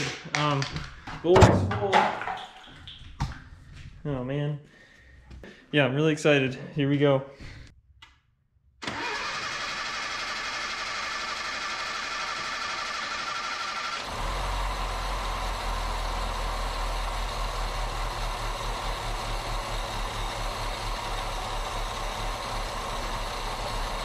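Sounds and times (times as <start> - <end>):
engine cranking on starter: 8.8 - 24.0
car engine running: 9.9 - 24.0.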